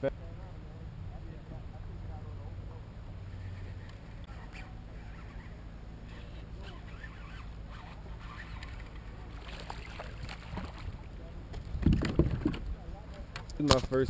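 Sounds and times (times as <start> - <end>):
low motor hum: 0.0 - 13.6
light water splashing: 6.2 - 12.6.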